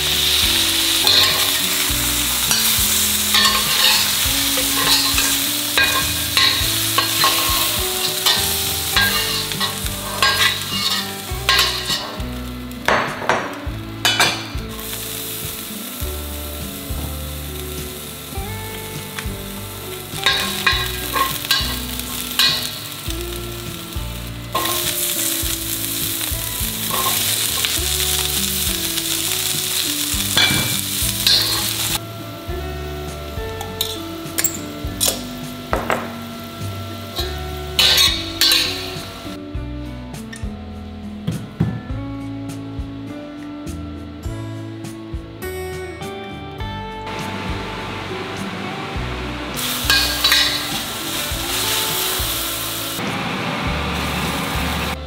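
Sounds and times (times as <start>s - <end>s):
food sizzling in wok: 0.0s - 39.4s, 47.1s - 55.0s
metal spatula scraping pan: 3.4s - 12.2s.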